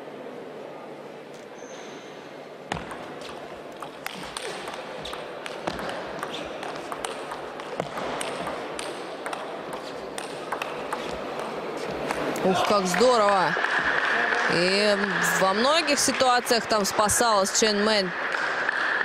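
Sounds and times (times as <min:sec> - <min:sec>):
table tennis ball clicking: 0:02.7 - 0:12.2.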